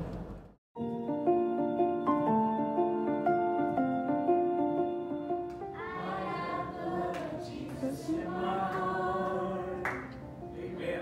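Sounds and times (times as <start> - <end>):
instrumental background music: 0.8 - 11.0
children singing together: 5.7 - 9.9.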